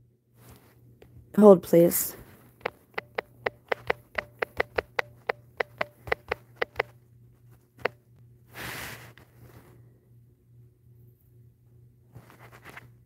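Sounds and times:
taps on smartphone keyboard: 2.6s - 6.9s.

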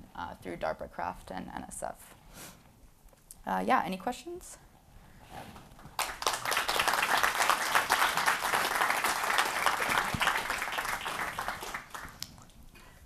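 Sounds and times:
audience applauding: 5.9s - 12.6s.

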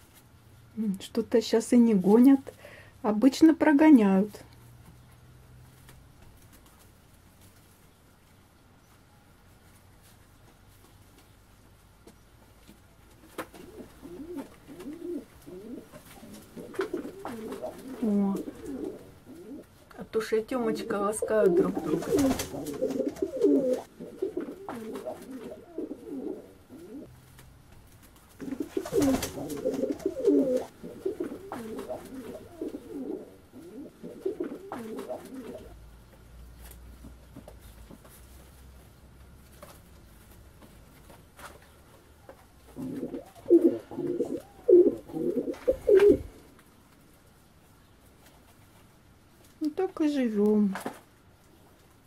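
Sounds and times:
pigeons cooing: 13.5s - 19.7s, 20.6s - 27.1s, 28.4s - 35.8s, 42.7s - 46.4s.

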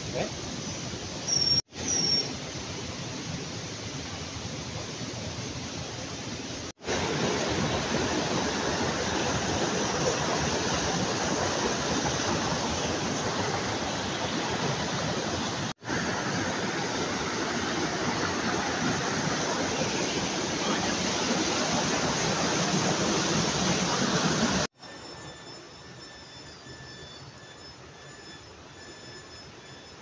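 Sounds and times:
stream rushing over rocks: 2.5s - 24.7s.

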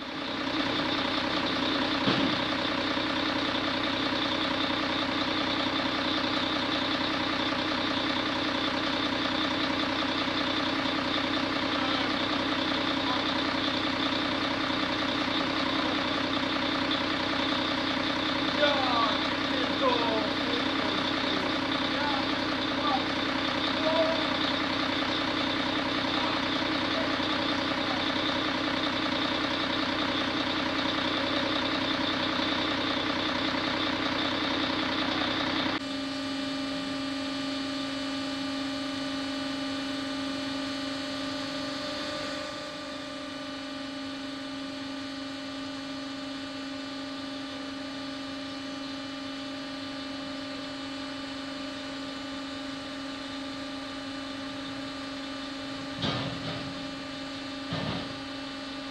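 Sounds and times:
engine running: 0.0s - 58.9s
low machine hum: 34.0s - 58.9s.

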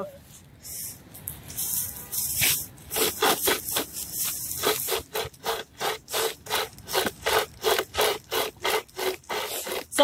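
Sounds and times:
chainsaw rasping through branch: 2.9s - 10.0s.

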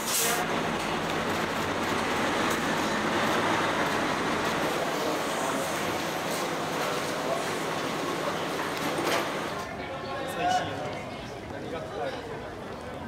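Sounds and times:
traffic hum: 0.0s - 9.8s
bus engine running: 0.4s - 9.6s.

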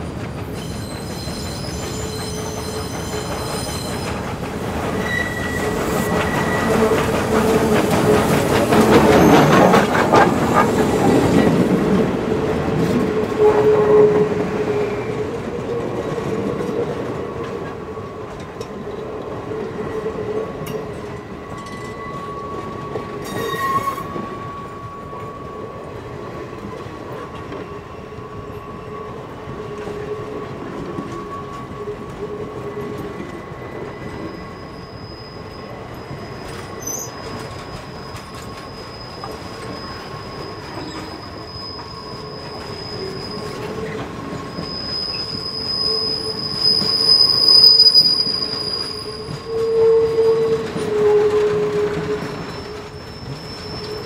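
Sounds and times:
train wheels clicking over rail joints: 0.0s - 13.4s
high wheel squeal: 0.5s - 4.2s, 4.9s - 11.7s, 21.2s - 25.7s, 32.8s - 54.0s.

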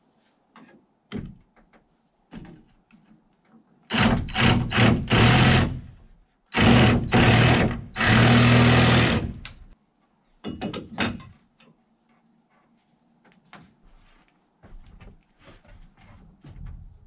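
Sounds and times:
cordless drill whirring: 6.6s - 9.5s.

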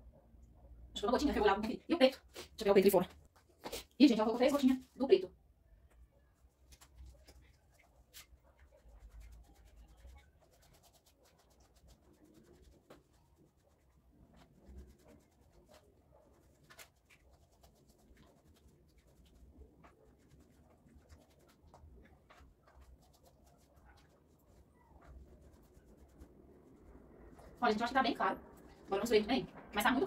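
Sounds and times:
paint stirring scrapes and clicks: 6.6s - 27.8s.

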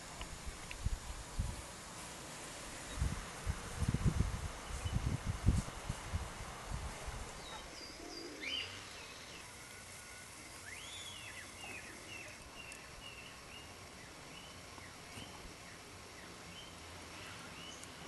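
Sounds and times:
outdoor hush: 0.0s - 18.0s
wind gusts on microphone: 0.3s - 1.7s, 2.6s - 7.5s
small bird chirping and whistling: 7.4s - 9.4s, 10.6s - 13.7s.

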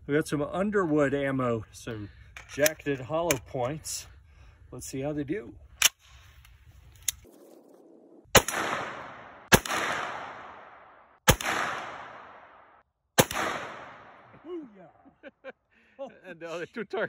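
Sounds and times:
pistol shots with echo: 8.3s - 14.3s.

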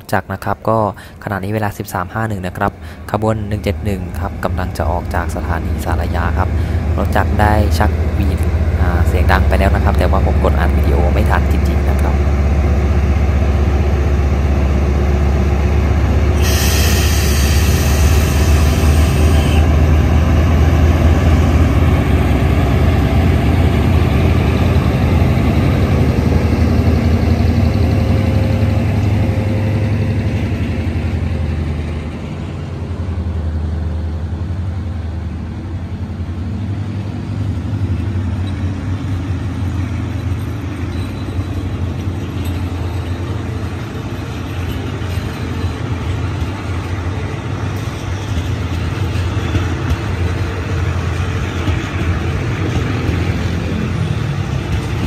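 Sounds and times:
diesel locomotive engine drone: 0.0s - 55.0s
train coaches rolling: 1.5s - 55.0s
air hiss: 16.3s - 19.6s.

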